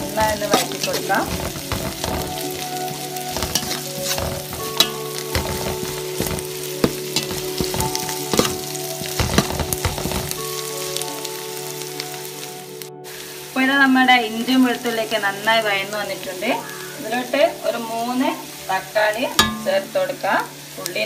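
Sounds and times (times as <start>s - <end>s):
utensil scraping pan: 0.0s - 10.4s, 19.4s - 19.8s
onions sizzling in hot oil: 0.0s - 21.0s.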